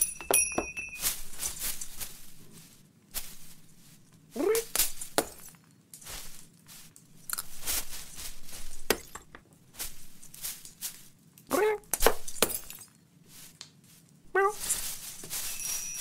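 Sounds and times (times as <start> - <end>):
glass baubles clinking: 0.0 - 1.8, 14.6 - 16.0
branches and tinsel rustling: 0.0 - 16.0
cat mewing: 11.5 - 11.9, 14.3 - 14.7.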